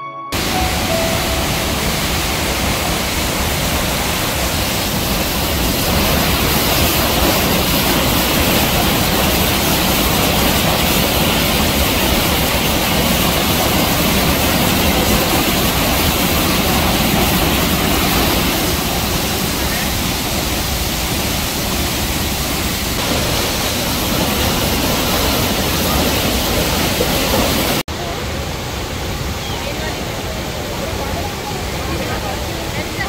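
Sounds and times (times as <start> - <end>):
music notes: 0.0 - 2.9
waterfall rushing onto rocks: 0.4 - 33.0.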